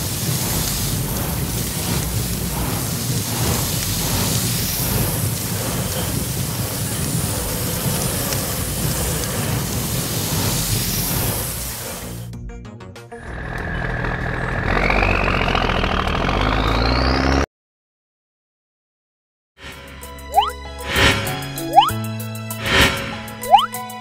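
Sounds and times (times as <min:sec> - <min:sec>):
water jet rushing hiss: 0:00.0 - 0:12.3.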